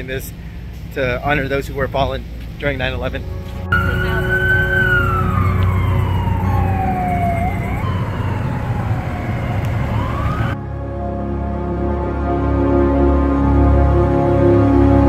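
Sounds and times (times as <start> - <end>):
low rumble: 0.4 - 13.4
emergency vehicle siren wailing: 3.5 - 10.9.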